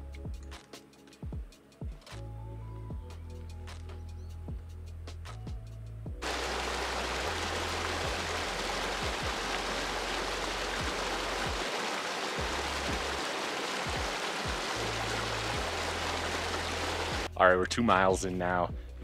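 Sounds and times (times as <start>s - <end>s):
background music with bass and drums: 0.0s - 11.6s, 12.4s - 13.2s, 13.8s - 19.0s
rushing water: 6.2s - 17.3s.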